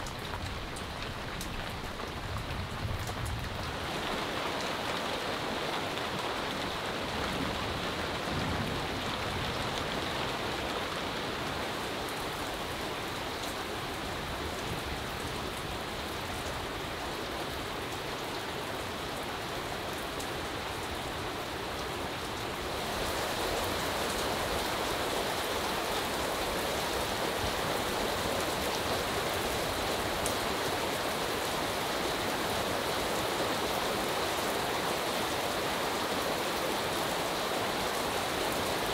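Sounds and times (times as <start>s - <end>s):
water dripping from eaves: 0.0s - 14.6s
rain on a thatched roof: 0.0s - 38.9s.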